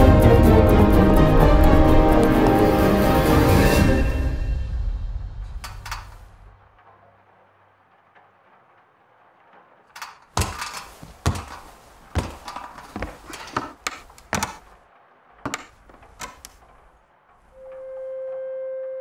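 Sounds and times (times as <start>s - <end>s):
knocks and thuds with creaks: 10.0s - 14.8s, 15.4s - 16.9s.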